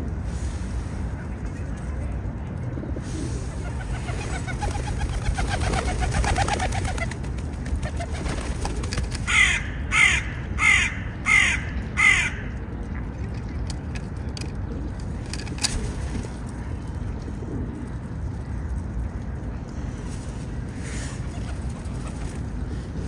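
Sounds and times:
crow cawing: 9.3 - 12.5.

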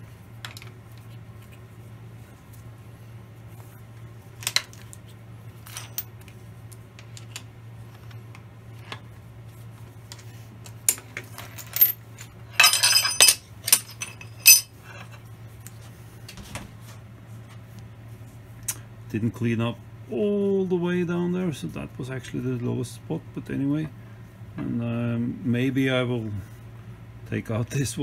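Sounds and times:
steady low hum: 0.0 - 28.0
metal clamps clinking: 10.9 - 14.7
ringing metal clanks: 12.6 - 14.7.

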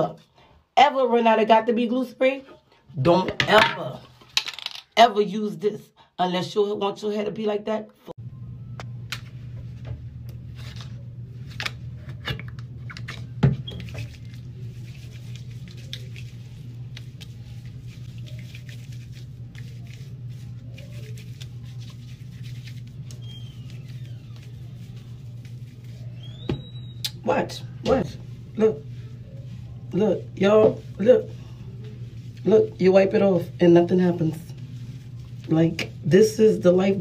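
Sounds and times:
steady low hum: 8.2 - 37.0
hands rubbing lather in hair: 13.8 - 26.7, 28.2 - 36.9.

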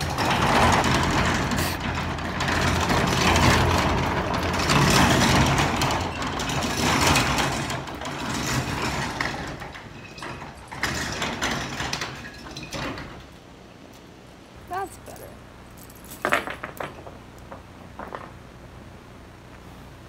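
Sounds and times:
steady low hum: 13.2 - 20.0.

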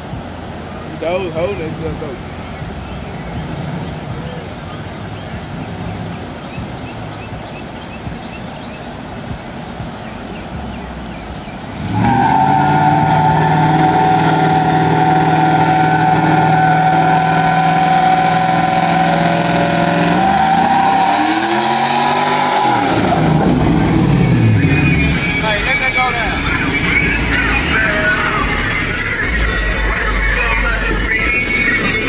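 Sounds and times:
car engine revving high: 10.5 - 32.0.

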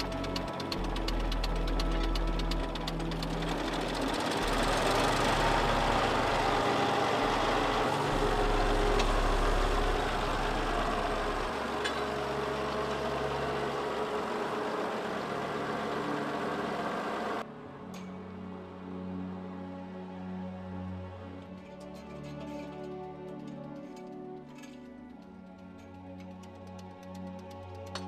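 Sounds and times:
diesel engine running: 0.0 - 17.4.

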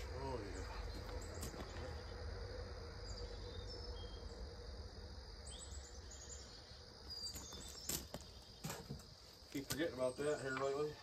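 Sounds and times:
insects chirring: 0.0 - 11.0
high bird chirps: 5.4 - 8.8.

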